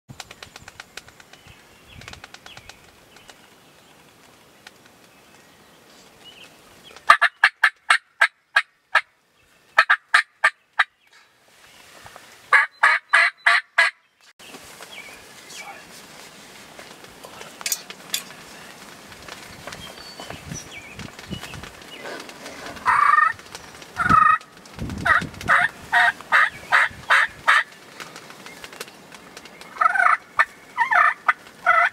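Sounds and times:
wild turkey calling: 0:06.9 - 0:14.0, 0:21.8 - 0:28.7, 0:29.3 - 0:31.9.

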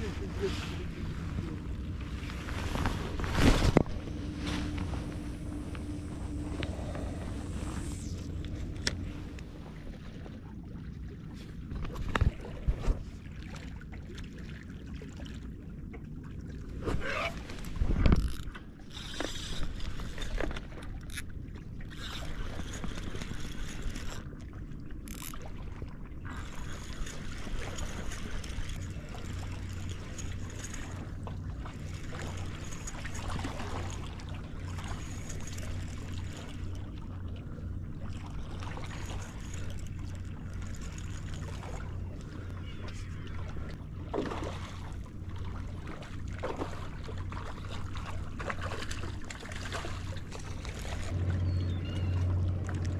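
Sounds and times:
fishing reel gears whirring: 0:03.7 - 0:09.9, 0:17.0 - 0:24.4, 0:25.0 - 0:25.6, 0:26.3 - 0:37.3, 0:38.2 - 0:42.1.

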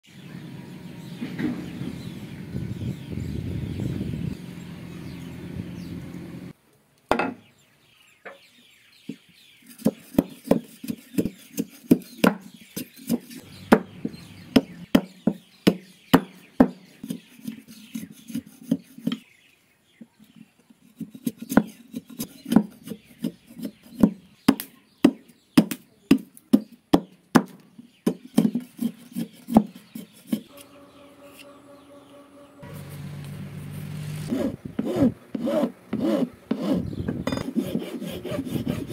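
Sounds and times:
blade chopping bamboo on wood: 0:09.7 - 0:19.2, 0:21.0 - 0:30.7.

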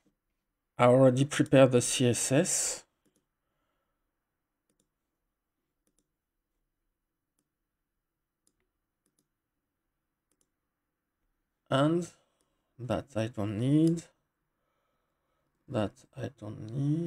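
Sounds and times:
computer mouse clicks: 0:03.0 - 0:03.3, 0:04.6 - 0:05.0, 0:05.8 - 0:06.2, 0:08.4 - 0:09.3, 0:10.3 - 0:10.6.

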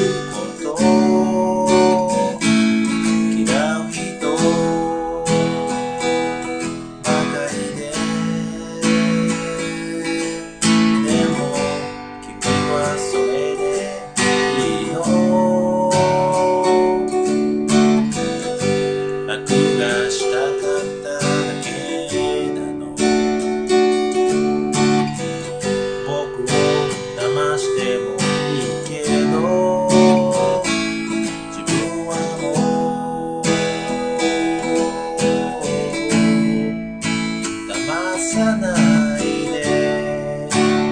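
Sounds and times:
man singing: 0:00.0 - 0:40.9
strummed acoustic guitar: 0:00.0 - 0:40.9.

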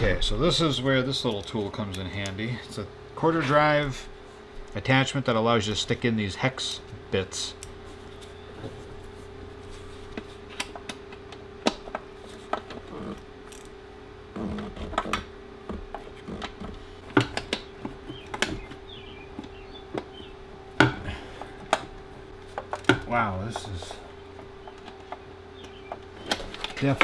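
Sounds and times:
steady hum: 0:00.0 - 0:27.0
hand tools clicking and knocking: 0:20.8 - 0:27.0.

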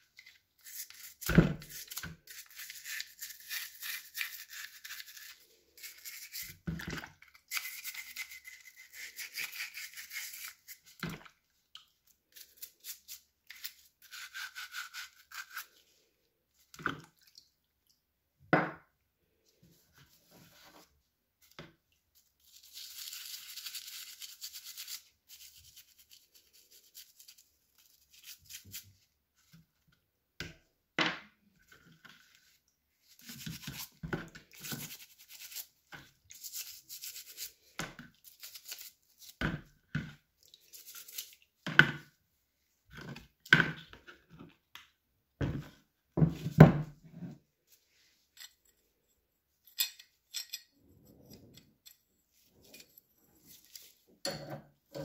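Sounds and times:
toothbrush scrubbing metal: 0:00.2 - 0:06.6, 0:07.4 - 0:11.0, 0:22.4 - 0:28.8, 0:33.2 - 0:39.4.

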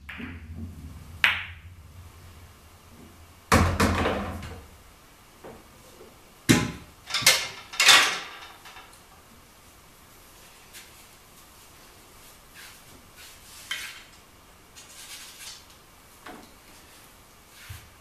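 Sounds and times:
pool balls clacking: 0:00.0 - 0:04.8, 0:06.5 - 0:09.0.

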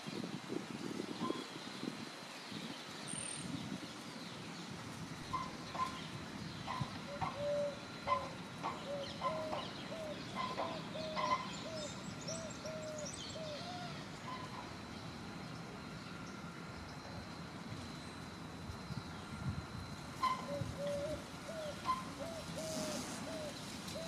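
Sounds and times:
hoopoe hooting: 0:20.2 - 0:23.6.

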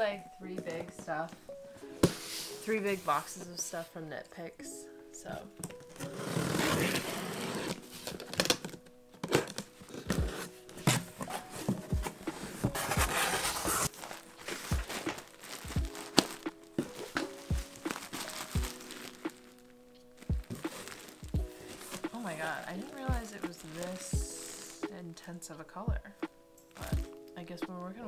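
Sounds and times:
packing tape tearing: 0:05.6 - 0:24.9
plastic bags crinkling: 0:05.7 - 0:24.9
cardboard flaps thumping: 0:09.4 - 0:19.2.

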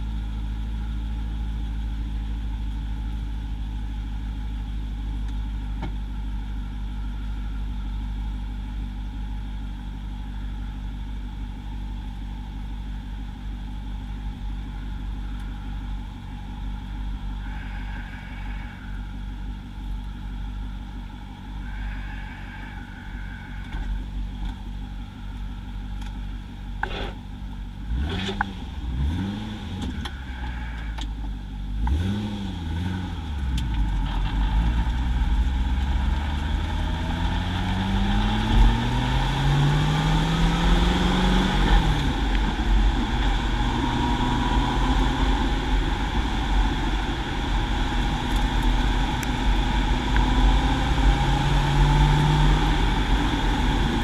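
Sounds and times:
car engine idling and revving: 0:00.0 - 0:54.0
car accelerating away: 0:27.8 - 0:30.9, 0:31.7 - 0:54.0.

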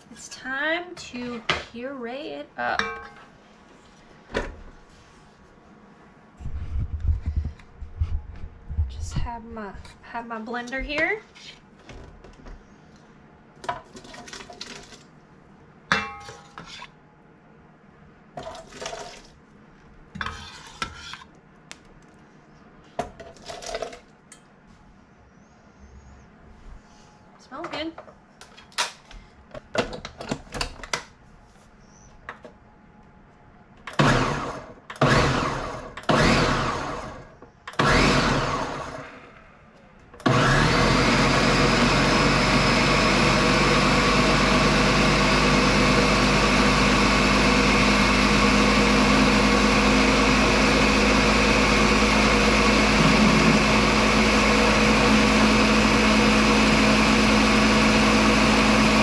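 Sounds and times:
blender pureeing soup: 0:33.9 - 0:39.3, 0:40.2 - 0:59.0.

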